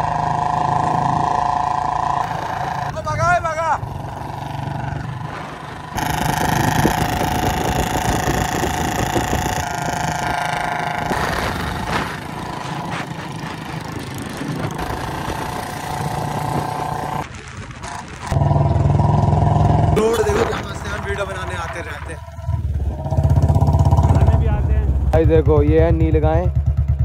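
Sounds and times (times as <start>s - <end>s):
motorcycle engines: 0.0s - 27.0s
wind on microphone: 4.9s - 24.5s.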